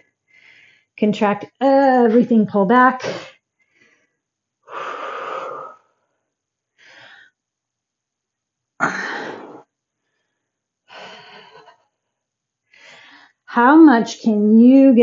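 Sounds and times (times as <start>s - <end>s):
woman exhaling forcefully: 8.8s - 9.7s.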